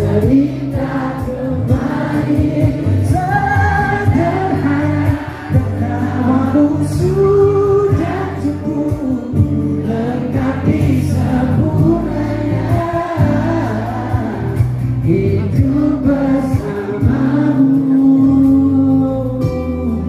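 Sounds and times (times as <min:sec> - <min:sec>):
audience singing along: 0:00.0 - 0:18.7
live pop song: 0:00.0 - 0:20.0.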